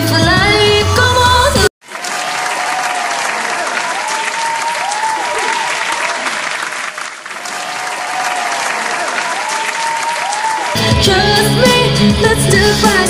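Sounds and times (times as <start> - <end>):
crowd clapping: 1.8 - 10.9
crowd cheering and screaming: 1.9 - 6.5, 7.3 - 11.0.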